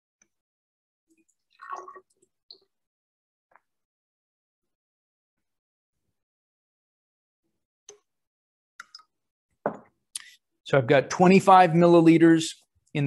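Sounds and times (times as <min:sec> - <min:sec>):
liquid trickling and dripping: 0:01.1 - 0:02.8.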